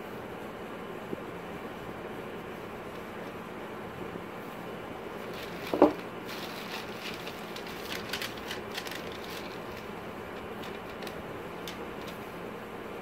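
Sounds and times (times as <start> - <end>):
plastic bag rustling: 5.0 - 12.4
paper receipt crinkling: 5.1 - 12.4.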